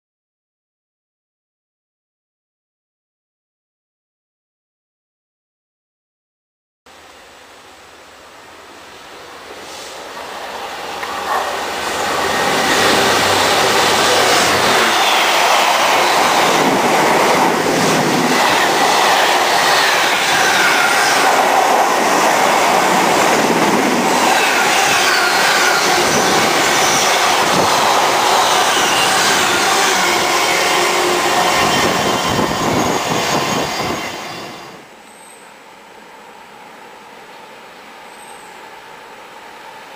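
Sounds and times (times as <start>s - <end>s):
train wagons rumbling on rails: 9.2s - 34.9s.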